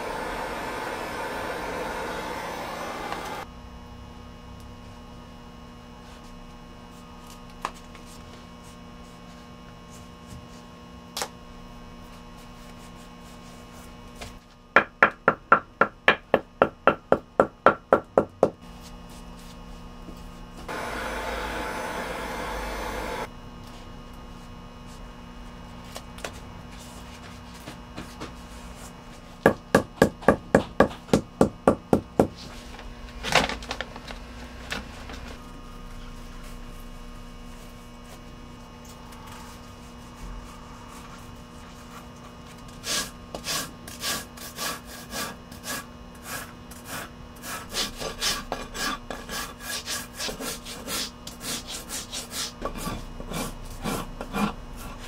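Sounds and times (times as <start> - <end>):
steady machine noise: 0.0 - 3.5, 20.7 - 23.3
low workshop hum: 0.0 - 55.0.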